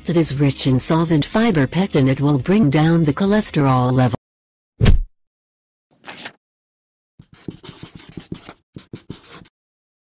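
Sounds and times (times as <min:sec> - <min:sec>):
brief swish: 0:04.8 - 0:05.1
marker scratching on paper: 0:07.2 - 0:09.6.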